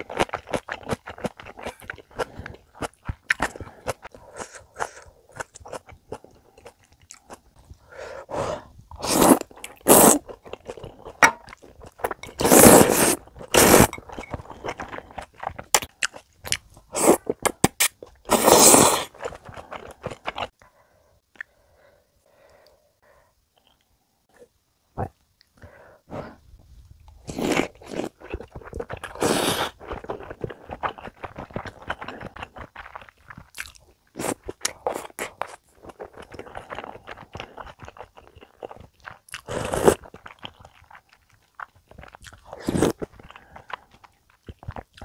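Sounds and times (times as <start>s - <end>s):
loud noodle slurps: 9.0s - 10.2s, 12.4s - 14.0s, 17.8s - 19.2s.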